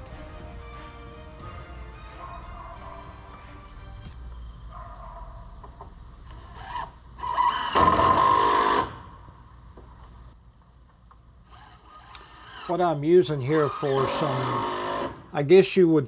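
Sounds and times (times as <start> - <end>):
drill driving screw into wood: 6.5 - 9.0, 11.5 - 12.7, 14.4 - 15.2.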